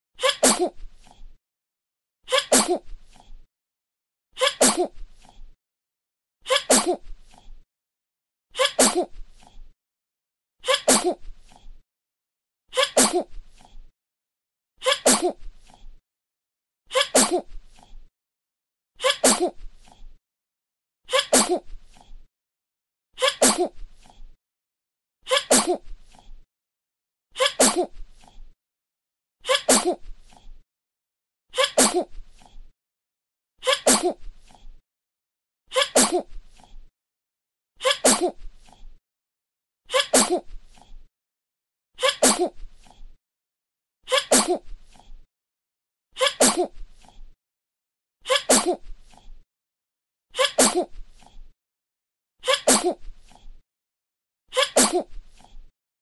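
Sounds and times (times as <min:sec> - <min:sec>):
baby sneezing: 0:00.2 - 0:00.8, 0:02.3 - 0:02.8, 0:04.4 - 0:04.9, 0:06.5 - 0:07.0, 0:08.6 - 0:09.1, 0:10.7 - 0:11.2, 0:12.8 - 0:13.3, 0:14.8 - 0:15.4, 0:16.9 - 0:17.5, 0:19.0 - 0:19.6, 0:21.1 - 0:21.7, 0:23.2 - 0:23.8, 0:25.3 - 0:25.8, 0:27.4 - 0:27.9, 0:29.5 - 0:30.0, 0:31.6 - 0:32.1, 0:33.6 - 0:34.2, 0:35.7 - 0:36.2, 0:37.8 - 0:38.4, 0:39.9 - 0:40.5, 0:42.0 - 0:42.6, 0:44.1 - 0:44.6, 0:46.2 - 0:46.7, 0:48.3 - 0:48.8, 0:50.4 - 0:50.9, 0:52.4 - 0:53.0, 0:54.6 - 0:55.1.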